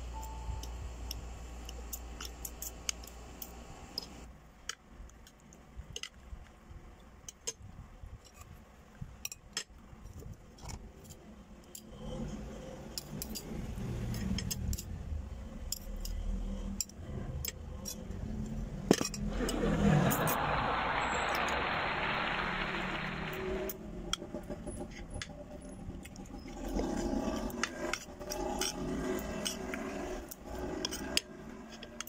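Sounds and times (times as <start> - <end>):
low rumble: 16.4 - 26.5.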